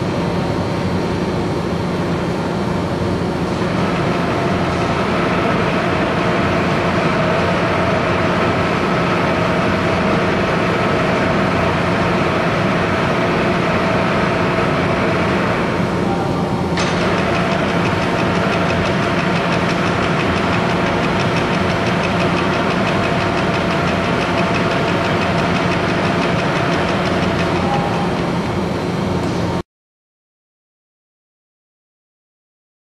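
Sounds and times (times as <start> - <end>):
machine motor and gearing hum: 0.0 - 29.6
high rattling ticking: 17.0 - 28.3.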